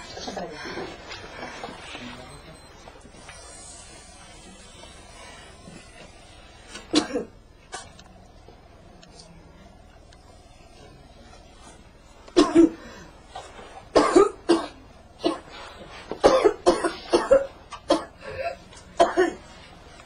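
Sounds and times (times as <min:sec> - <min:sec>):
person coughing hard: 0:06.9 - 0:07.9, 0:12.4 - 0:12.9, 0:13.9 - 0:15.5, 0:16.2 - 0:19.4.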